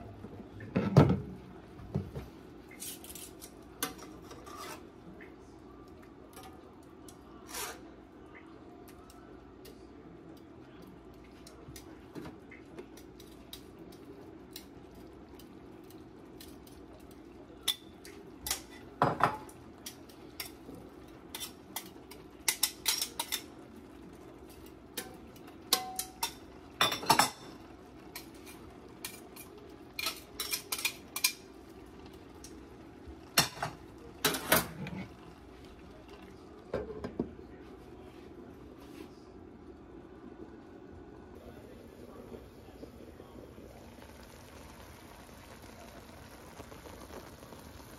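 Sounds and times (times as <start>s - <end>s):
metal tongs scraping a skillet: 2.8s - 4.9s, 7.4s - 7.9s.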